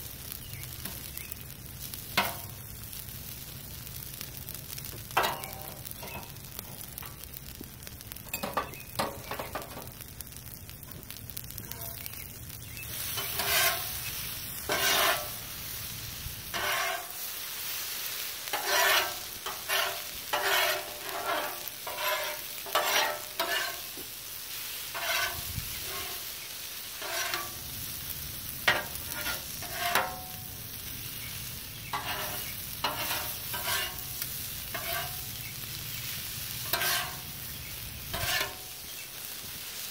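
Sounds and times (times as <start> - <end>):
food sizzling on a griddle: 0.0 - 39.9
metal spatulas scraping and clacking: 5.2 - 6.3, 13.1 - 13.9, 14.7 - 15.4, 16.5 - 17.1, 18.5 - 24.0, 24.9 - 26.2, 27.0 - 27.5, 28.7 - 30.2, 31.9 - 34.0, 34.7 - 35.2, 36.6 - 37.2, 38.1 - 38.6.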